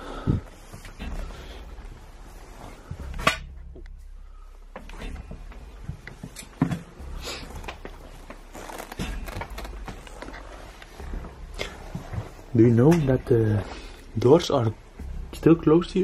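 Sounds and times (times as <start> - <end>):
footsteps: 0.1 - 13.3.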